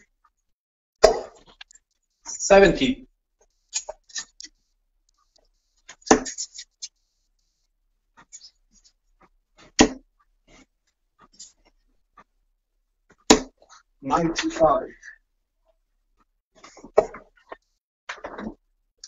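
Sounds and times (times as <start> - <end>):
faint clicks and taps: 1.4 - 2.3, 3.4 - 12.4
darts thudding into dartboard: 6.0 - 6.4, 9.7 - 10.0.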